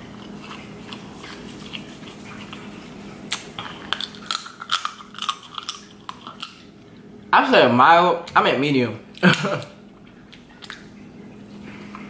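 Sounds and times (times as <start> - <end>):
steady low hum: 0.0 - 12.0
crab shell cracking: 3.3 - 6.7.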